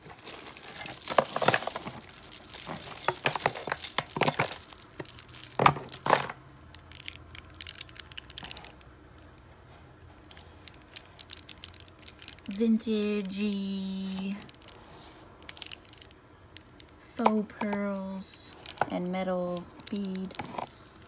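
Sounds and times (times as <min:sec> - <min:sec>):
jewelry clinking and rattling: 0:00.0 - 0:08.9, 0:10.3 - 0:14.8, 0:15.5 - 0:16.8, 0:17.6 - 0:21.0
light clicks of beads: 0:06.7 - 0:08.9, 0:10.2 - 0:14.8, 0:18.5 - 0:21.0.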